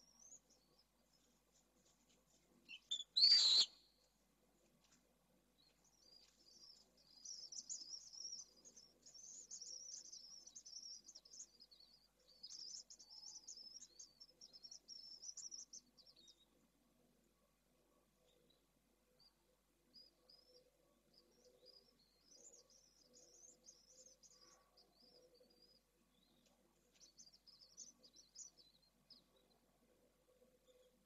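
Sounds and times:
swifts twittering: 0:02.7 - 0:03.8.

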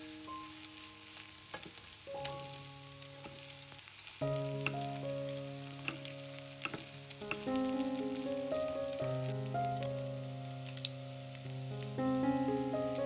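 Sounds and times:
batter sizzling in hot oil: 0:00.0 - 0:13.0
soft background music: 0:00.0 - 0:13.0
metal spoons clicking on pan: 0:05.8 - 0:07.5.

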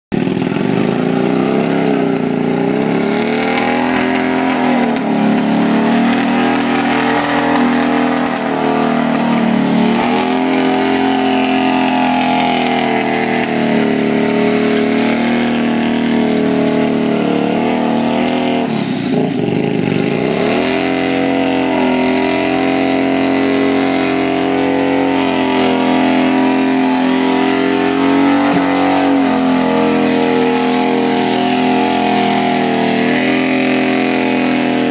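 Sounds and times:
motorcycle engine revving high: 0:00.1 - 0:34.9.

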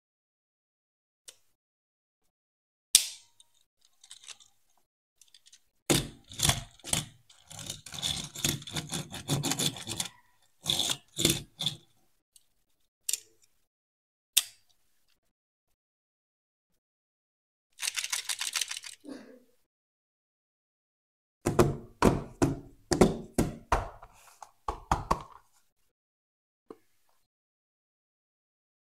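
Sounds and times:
toy truck scraping on cardboard: 0:06.0 - 0:11.9
plastic toy clicks: 0:17.8 - 0:19.0.

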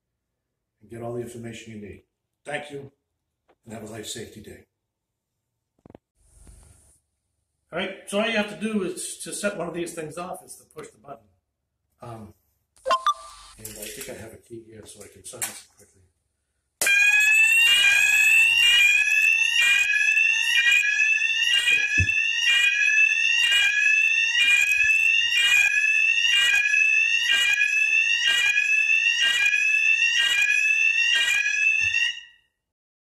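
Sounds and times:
rising sweep alarm tone: 0:12.9 - 0:13.6, 0:16.9 - 0:32.3.

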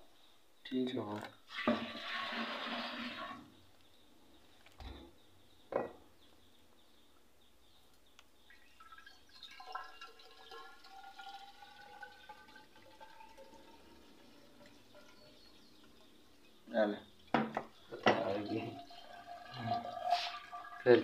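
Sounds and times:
liquid trickling and gurgling: 0:08.5 - 0:21.0.

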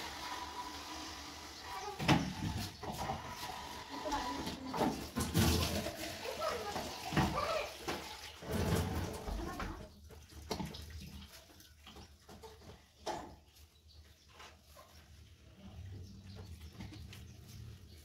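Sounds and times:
water splashing in dough: 0:02.6 - 0:13.0.

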